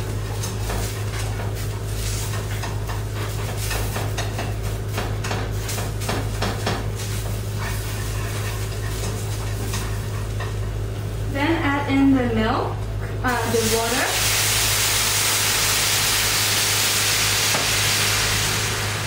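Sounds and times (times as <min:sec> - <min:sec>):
onions sizzling: 0:00.0 - 0:11.4, 0:13.3 - 0:19.0
steady low hum: 0:00.0 - 0:19.0
spatula scraping frying pan: 0:00.2 - 0:06.4, 0:07.0 - 0:10.7.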